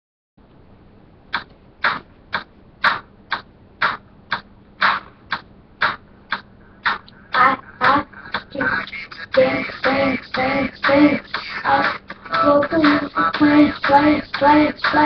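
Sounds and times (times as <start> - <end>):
faint hum and hiss: 0.4 - 15.0
sharp percussive hits: 1.3 - 15.0.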